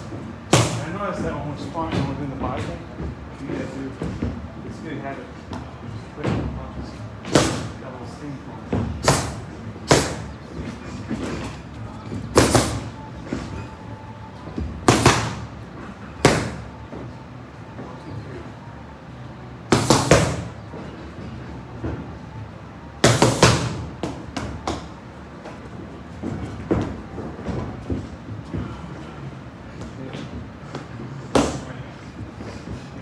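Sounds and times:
boxing gloves smacking mitts: 0.0 - 1.3, 7.2 - 7.8, 8.7 - 13.7, 14.6 - 17.0, 19.7 - 20.8, 23.0 - 28.7, 29.8 - 31.7.

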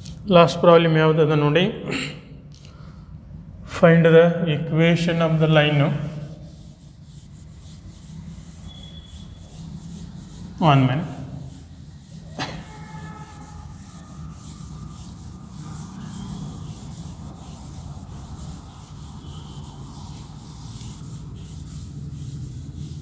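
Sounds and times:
duster rubbing on chalkboard: 4.9 - 23.0.

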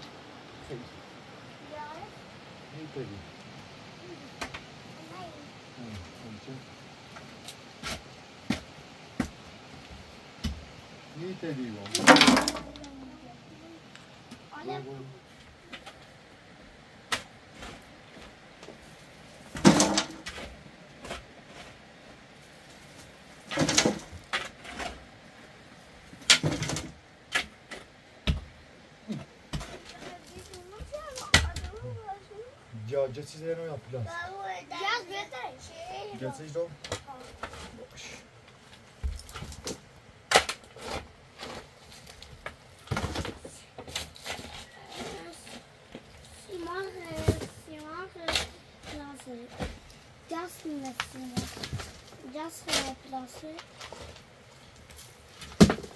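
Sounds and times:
rubble dumped into metal wheelbarrow: 11.9 - 12.8, 19.5 - 20.4, 23.5 - 25.0
shovel scraping dirt and rubble: 23.4 - 25.1, 40.3 - 42.1, 42.8 - 45.7, 50.4 - 54.3.

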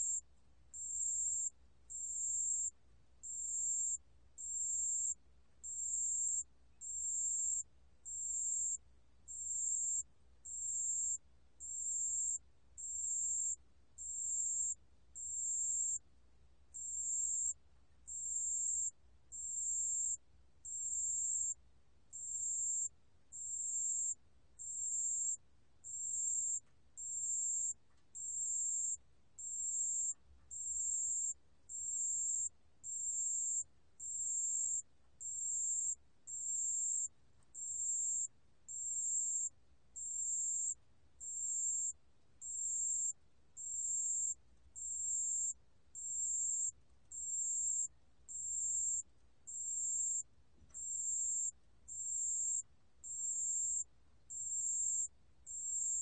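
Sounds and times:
cricket ringing trill: 22.2 - 39.5, 40.1 - 50.2, 50.8 - 56.0.

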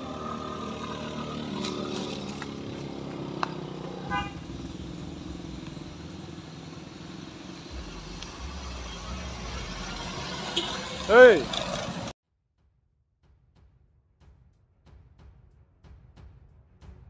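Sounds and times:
motor scooter passing: 0.0 - 12.1
car engines and tyres: 0.0 - 12.2
car horn toot: 4.0 - 4.8, 7.8 - 11.8.

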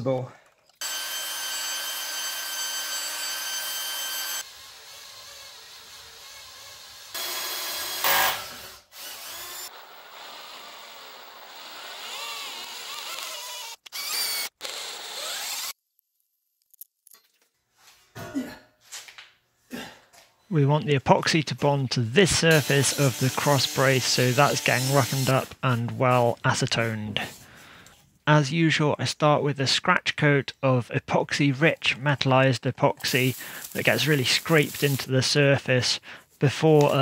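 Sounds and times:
cordless drill boring through steel: 0.8 - 15.8, 22.5 - 25.3.

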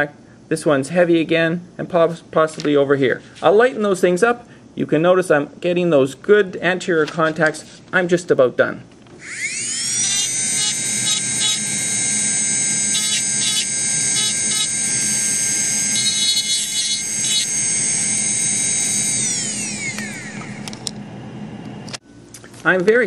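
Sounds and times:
dental handpiece whine: 9.2 - 22.0.

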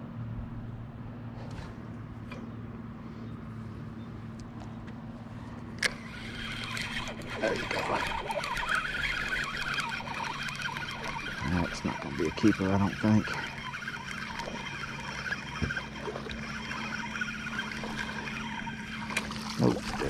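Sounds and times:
low motor hum: 0.0 - 20.0
fish splashing: 5.8 - 20.0
spinning reel cranking: 5.8 - 20.0.

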